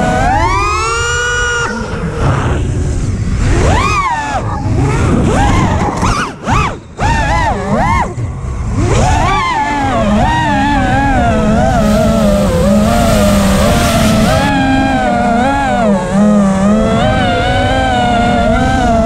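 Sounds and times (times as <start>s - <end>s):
quadcopter motors whining: 9.0s - 19.0s.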